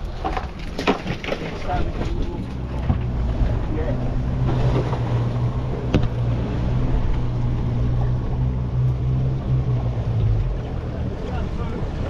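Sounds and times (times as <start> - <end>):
outboard motors humming: 0.0 - 12.0
water noise: 0.0 - 12.0
wind: 0.0 - 12.0.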